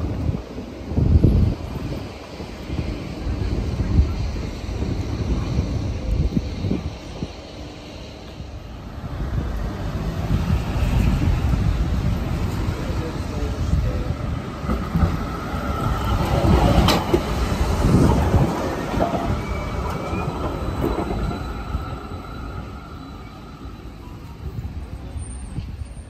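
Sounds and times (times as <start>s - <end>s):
tram wheels rumbling: 0.0s - 26.0s
wheel squeal: 18.0s - 24.4s.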